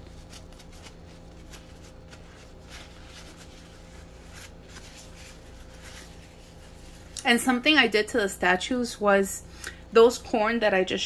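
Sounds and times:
paper towel rustling: 0.0s - 7.9s
faint steady hum: 0.0s - 11.0s.

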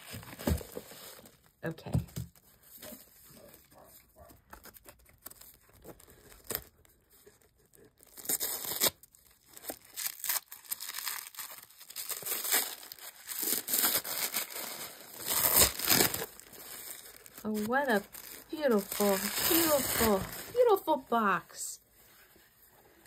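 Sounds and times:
tissue paper tearing and crinkling: 7.7s - 20.9s.

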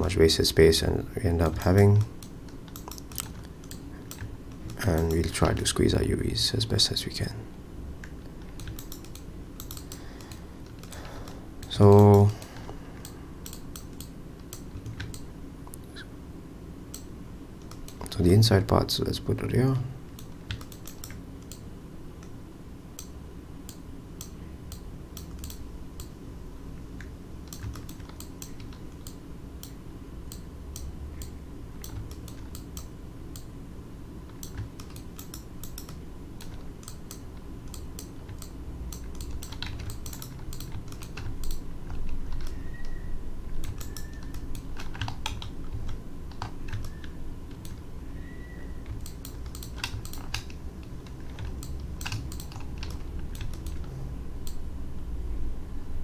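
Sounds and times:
low steady hum: 0.0s - 56.0s
mouse buttons clicking: 8.0s - 11.0s, 13.0s - 15.3s, 43.6s - 47.8s, 51.2s - 54.6s
keyboard keys clicking: 8.0s - 12.4s, 34.3s - 42.9s, 43.6s - 47.8s, 48.8s - 53.9s.

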